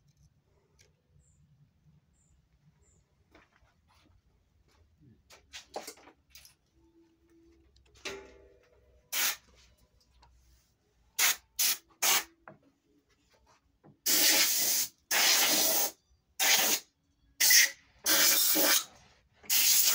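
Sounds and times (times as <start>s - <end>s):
pressurised spray hissing: 9.1s - 9.4s, 14.1s - 16.8s, 19.5s - 19.9s.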